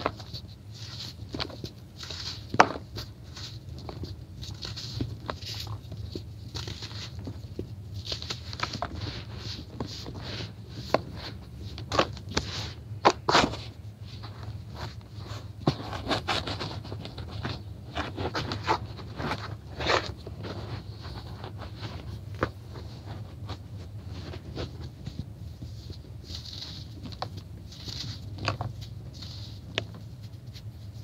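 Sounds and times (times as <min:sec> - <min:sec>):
falling crumbs pattering: 0:00.0 - 0:13.6
hands crushing dry blocks: 0:00.0 - 0:31.0.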